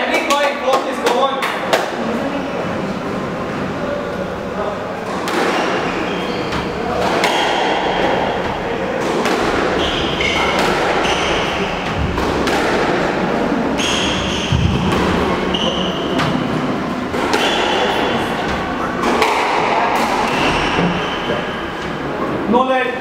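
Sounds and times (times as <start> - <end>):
squash ball cracking off rackets: 5.1 - 21.1
shoes squeaking on wooden floor: 5.6 - 8.8, 9.4 - 12.2, 13.7 - 16.6.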